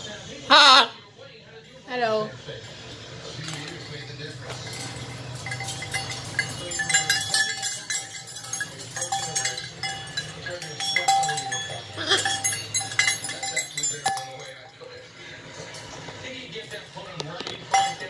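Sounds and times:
beads and chain clinking: 0:04.4 - 0:14.7.

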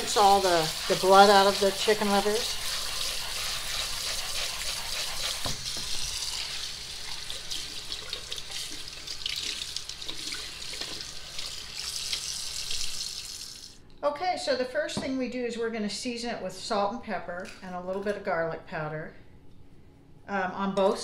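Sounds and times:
tap water splashing: 0:05.4 - 0:06.0.

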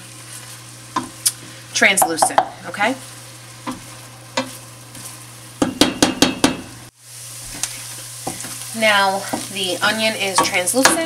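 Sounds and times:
onion sizzling in butter: 0:00.0 - 0:11.0
spoon knocking on pot: 0:02.0 - 0:02.6, 0:05.6 - 0:06.7.

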